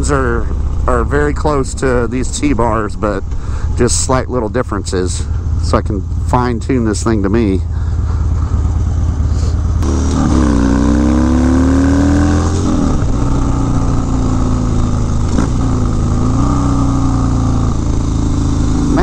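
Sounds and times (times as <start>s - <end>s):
motorcycle engine pulling away: 7.8s - 19.0s.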